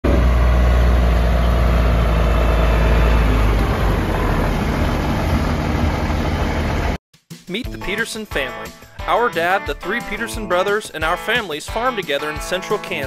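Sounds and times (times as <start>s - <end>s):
truck engine rumbling: 0.0s - 7.0s.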